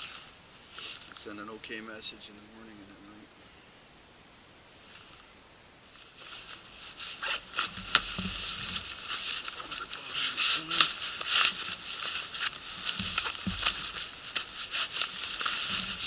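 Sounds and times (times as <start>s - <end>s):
nylon backpack rustling: 5.9s - 16.0s.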